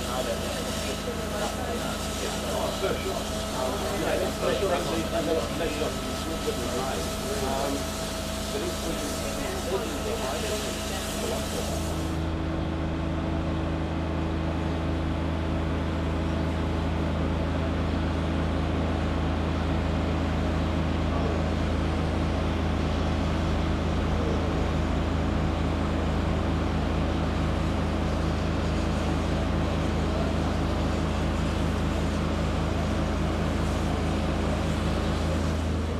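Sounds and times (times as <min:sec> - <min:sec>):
machinery droning hum: 0:00.0 - 0:35.9.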